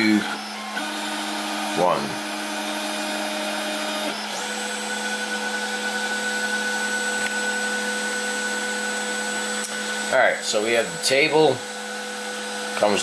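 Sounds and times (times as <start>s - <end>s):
stepper motors whining: 0.0s - 13.0s.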